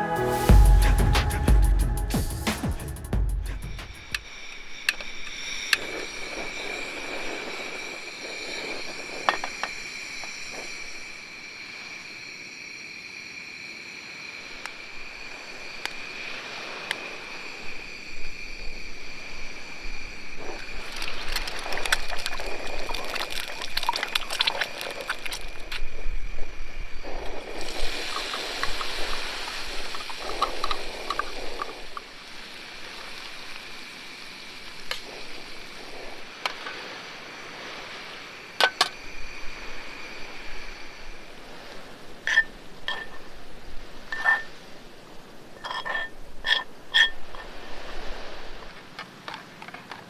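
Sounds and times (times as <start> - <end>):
steady high whine: 0.0 - 23.2
hot oil crackling in a pan: 27.1 - 33.6.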